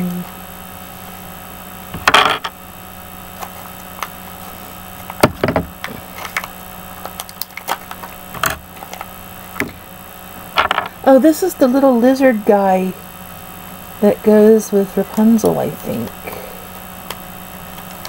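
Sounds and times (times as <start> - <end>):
plastic clicks and crinkles: 5.0 - 9.8.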